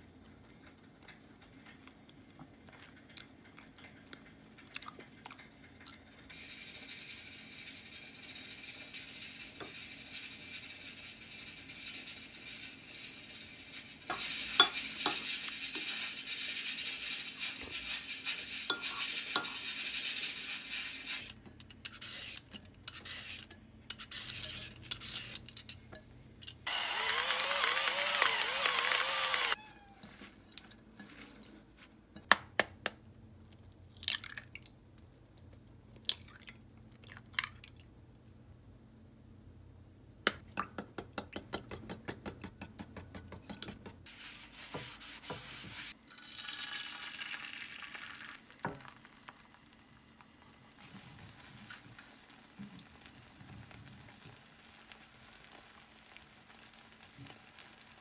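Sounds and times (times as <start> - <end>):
utensils knocking on dishes: 14.1 - 15.3
fork beating eggs in a bowl: 14.1 - 25.6, 40.6 - 44.1.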